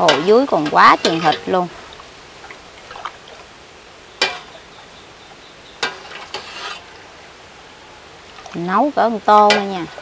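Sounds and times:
ladle stirring broth: 0.0 - 2.2, 5.8 - 7.0.

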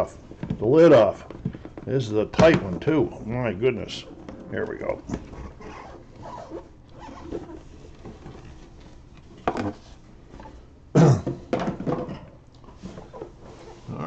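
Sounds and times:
cardboard rubbing and scraping: 5.1 - 9.0.

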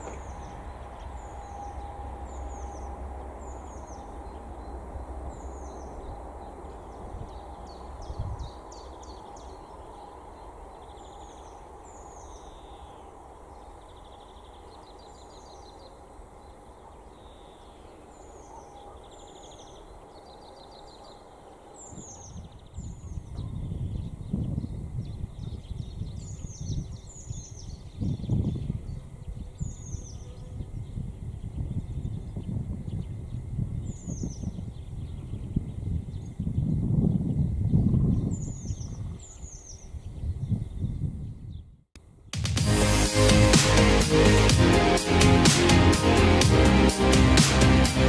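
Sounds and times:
low rumble: 0.0 - 8.7, 42.4 - 48.0.

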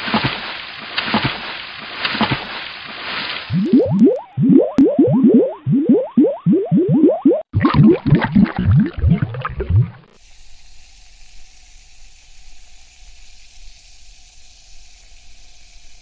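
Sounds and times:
water bubbling and gurgling: 3.5 - 10.2
fizzing hiss: 10.0 - 16.0.

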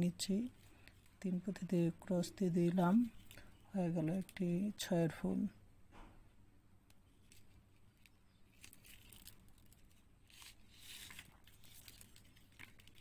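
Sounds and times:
beads clicking: 7.0 - 13.0.

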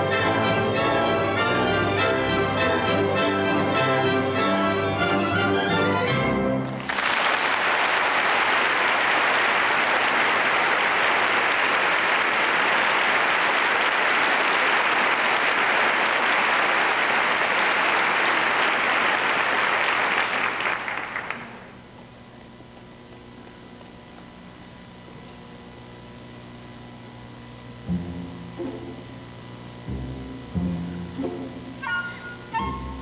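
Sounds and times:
audience applauding: 6.6 - 21.7.

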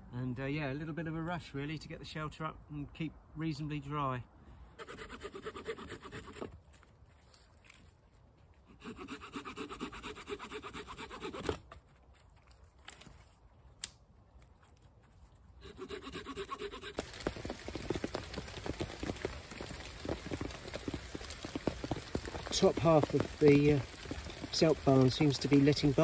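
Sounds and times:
blade sawing through branch: 4.8 - 6.6, 8.7 - 11.7, 15.6 - 17.2
rain on a tarp: 16.5 - 26.0.

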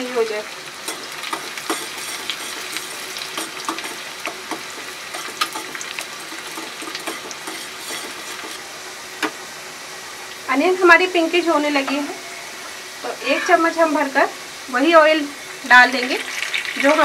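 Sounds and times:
onions sizzling in hot oil: 0.0 - 17.0
spoon stirring in pan: 0.8 - 8.6.

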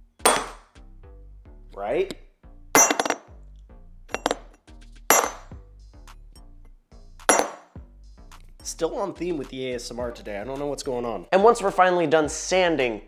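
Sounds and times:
quiet background music: 0.0 - 13.0
metal parts clinking: 2.8 - 3.3, 4.2 - 4.5.

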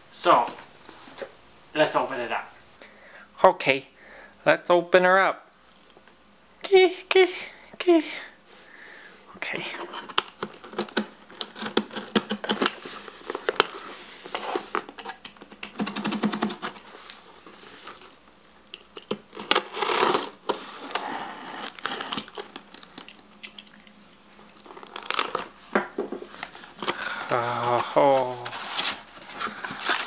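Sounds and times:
tape crinkling: 9.7 - 25.7, 26.3 - 30.0
knife cutting packing tape: 10.0 - 16.8, 19.0 - 23.7.

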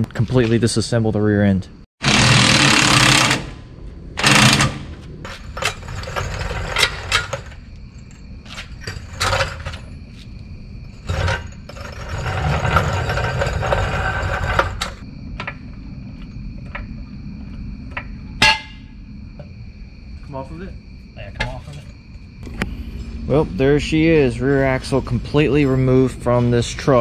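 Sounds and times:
metal rattling: 4.2 - 10.0
metal tools knocking and clanking: 18.0 - 18.8.

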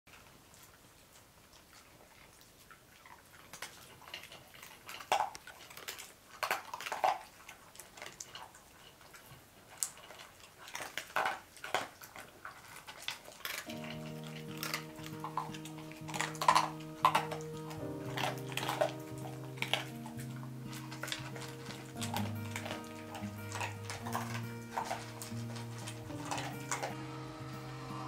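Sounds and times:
dogs crunching kibble: 0.1 - 28.0
kibble clattering against bowls: 3.4 - 28.0
background music: 13.7 - 28.0.

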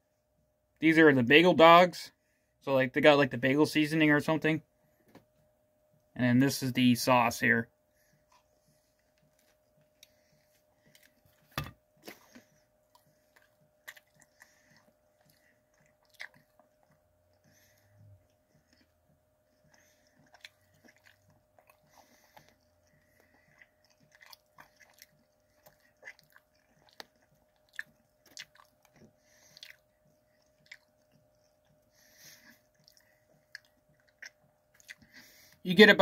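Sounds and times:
close-up chewing: 8.0 - 35.6.

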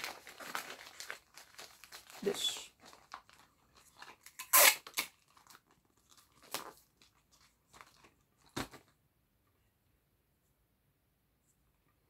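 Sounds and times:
wrapping paper rustling: 0.0 - 8.9.

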